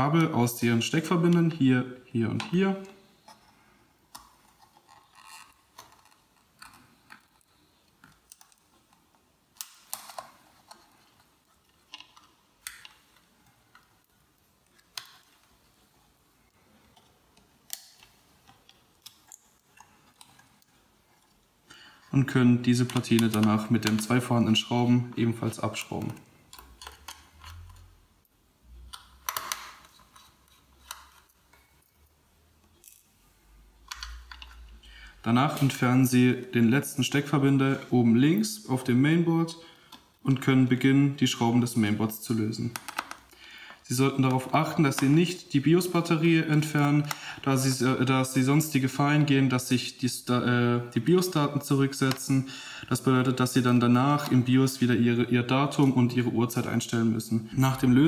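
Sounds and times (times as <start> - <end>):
cable connectors clicking: 4.1 - 15.5, 16.9 - 21.4, 22.7 - 24.3, 25.5 - 27.9, 28.8 - 31.9, 33.8 - 34.8, 42.7 - 43.3, 52.0 - 52.3.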